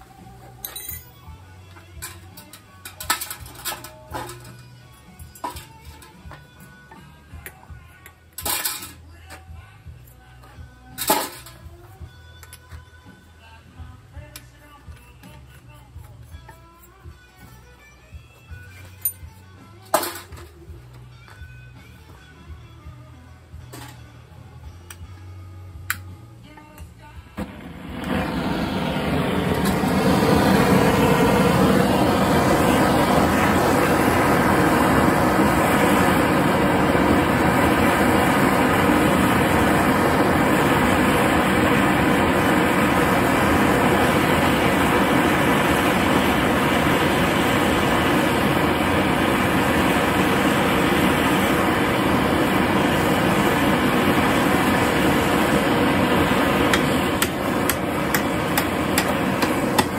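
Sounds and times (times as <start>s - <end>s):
propane torch burning: 0.0s - 9.0s, 27.4s - 59.9s.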